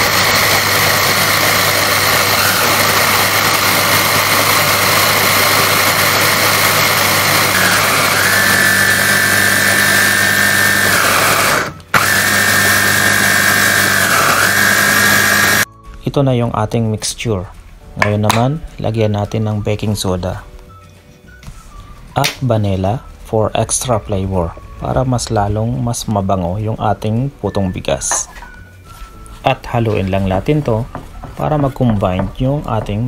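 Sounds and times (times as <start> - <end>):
food processor grinding: 0.0 - 15.7.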